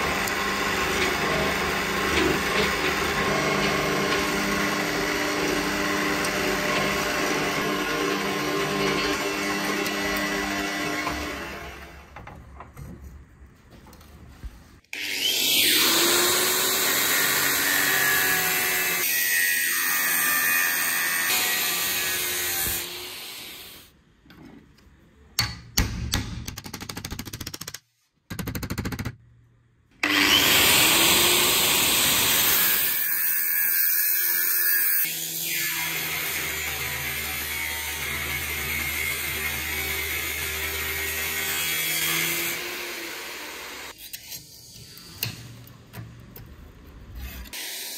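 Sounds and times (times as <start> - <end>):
angle grinder cutting steel: 0.0 - 11.8, 15.0 - 23.8, 30.0 - 44.8.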